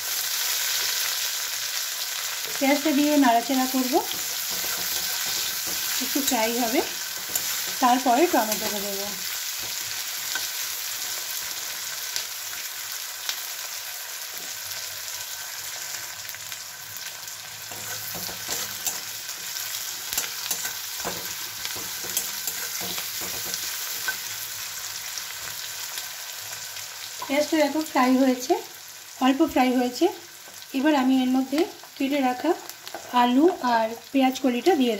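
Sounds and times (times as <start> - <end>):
onions sizzling in oil: 0.0 - 34.9
spatula scraping metal pan: 4.0 - 8.9, 17.7 - 24.4.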